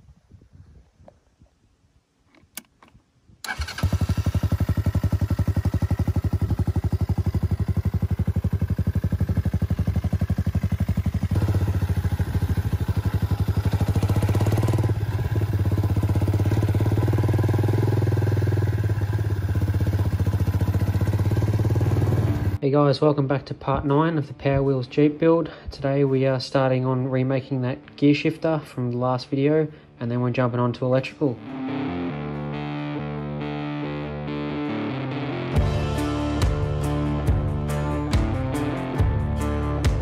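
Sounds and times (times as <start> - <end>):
go-kart engine running: 3.4 - 22.6.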